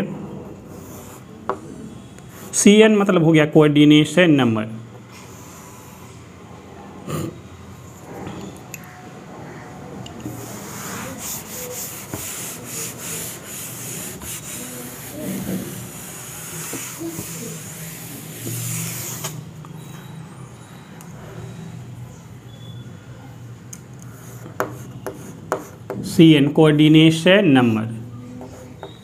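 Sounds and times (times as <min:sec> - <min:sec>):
cloth scrubbing a chalkboard: 0:10.3 - 0:19.3.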